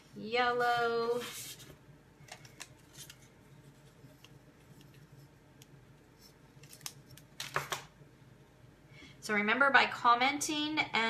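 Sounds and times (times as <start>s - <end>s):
paper rustling: 1.2s - 5.3s, 6.2s - 7.8s.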